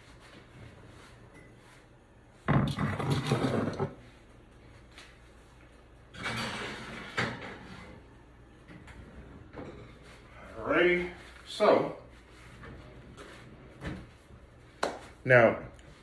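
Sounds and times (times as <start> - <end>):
oven door and rack clattering: 6.1 - 10.2.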